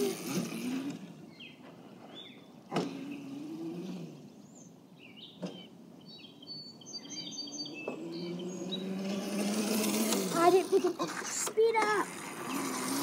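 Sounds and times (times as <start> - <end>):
electric motor whine: 0.0 - 1.3, 7.9 - 10.8
birds chirping: 0.0 - 13.0.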